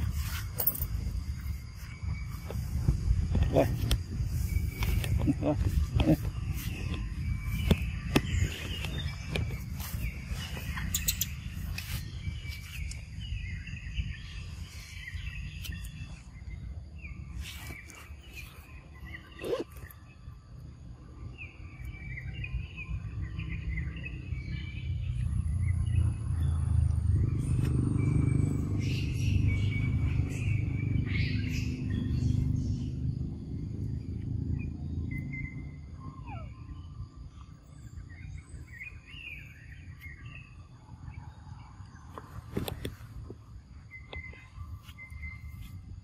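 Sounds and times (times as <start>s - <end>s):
short high chirping calls: 3.6s - 14.1s, 35.2s - 36.9s.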